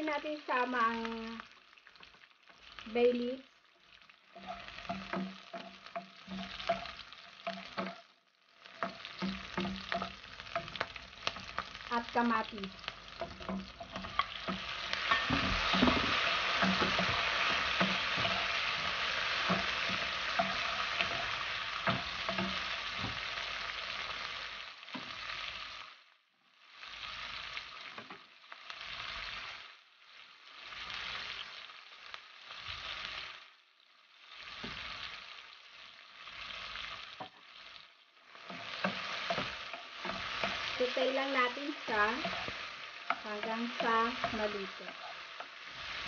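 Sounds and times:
vegetables sizzling in a frying pan: 0.0 - 46.0
stirring with a wooden spoon: 3.7 - 25.2, 34.2 - 46.0
knocks on a pan: 15.1 - 17.2.

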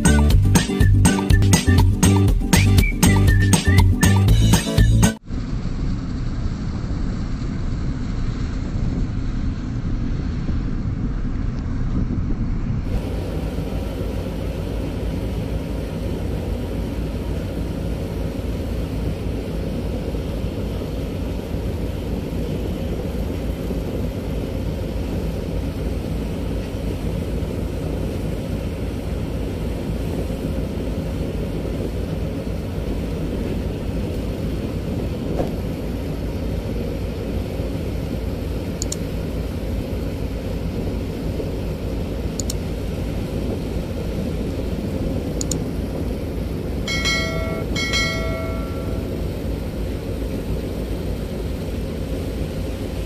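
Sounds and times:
boat engine rumble: 0.0 - 53.0
faint steady hum: 12.9 - 53.0
faint high ticks: 38.8 - 39.0, 42.4 - 42.6, 45.4 - 45.7.

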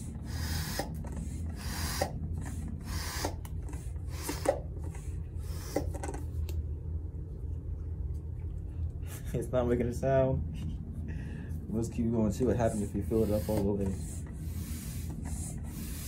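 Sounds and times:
hand pump rasping strokes: 0.0 - 6.2, 12.5 - 16.0.

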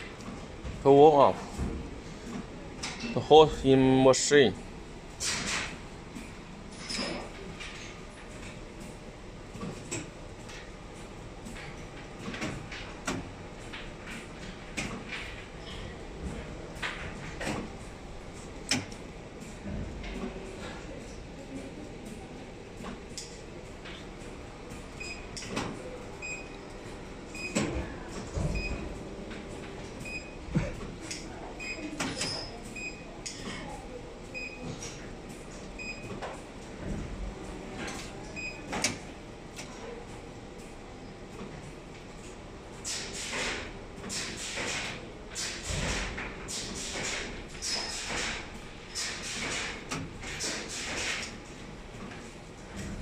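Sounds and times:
factory machinery hum: 0.0 - 53.0
sharp clicks and knocks: 18.6 - 20.4.

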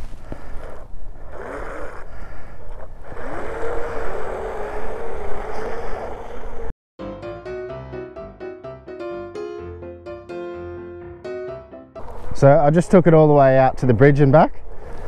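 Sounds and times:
electric motors whining: 0.3 - 6.7.

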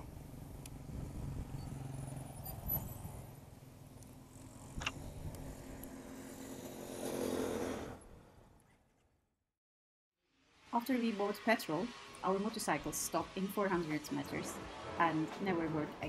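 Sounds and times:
sharp clicks: 4.8 - 6.0.

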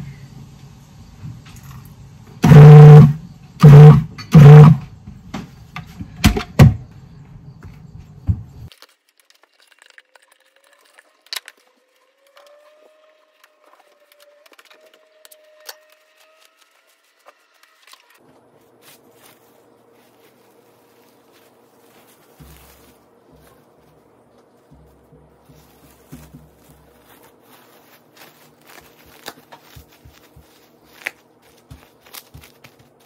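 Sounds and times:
plastic wrap crinkling: 8.7 - 33.0.

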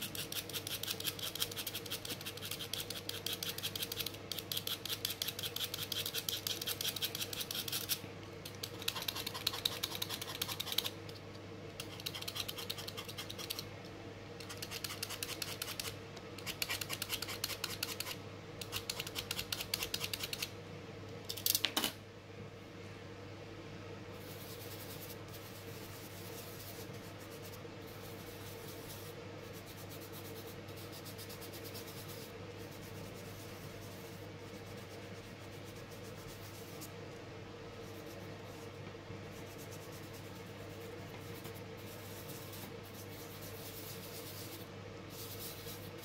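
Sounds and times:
fingertips rubbing pastel on paper: 0.0 - 8.0, 11.8 - 13.6, 24.2 - 37.0, 37.7 - 46.0
low steady hum: 0.0 - 46.0.

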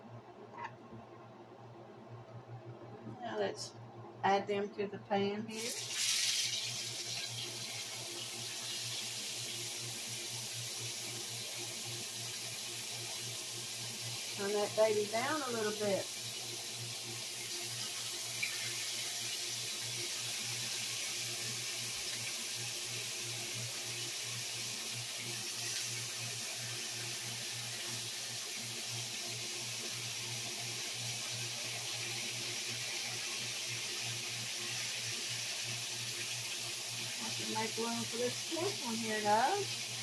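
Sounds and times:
low steady hum: 0.0 - 5.8
bones sizzling in a frying pan: 5.5 - 40.0.

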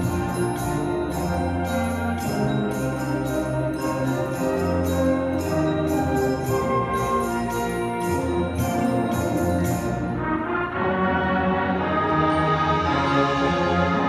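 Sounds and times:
high-pitched percussion beat: 0.0 - 10.2
brass and woodwinds chords: 0.0 - 14.0.

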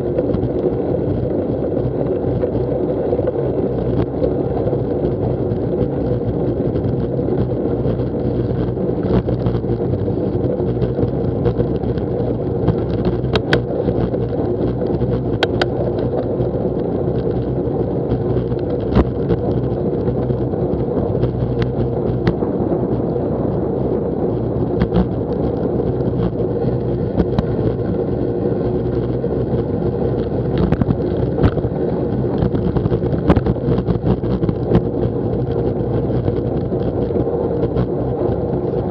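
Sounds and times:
wind on microphone: 0.0 - 38.9
tyres rolling on wet tarmac: 0.1 - 38.9
bike clicks and knocks: 12.7 - 16.3.

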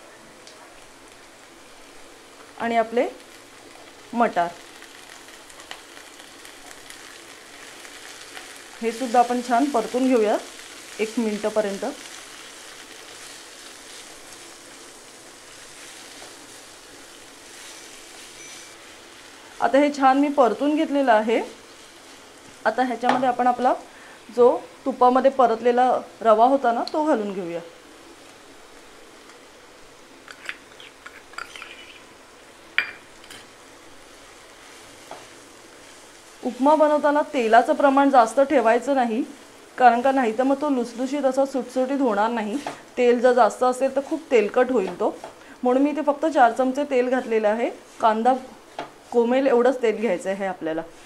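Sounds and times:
faint background hiss: 0.0 - 51.0
vegetables sizzling in hot oil: 0.7 - 51.0
kitchen utensils clinking: 30.3 - 31.9.

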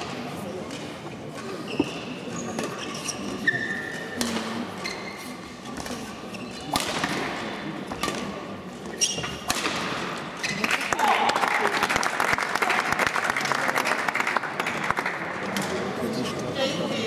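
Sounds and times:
shoes squeaking on court: 0.8 - 6.9, 7.9 - 9.5
rackets striking shuttlecock: 6.7 - 8.4, 9.3 - 10.2.

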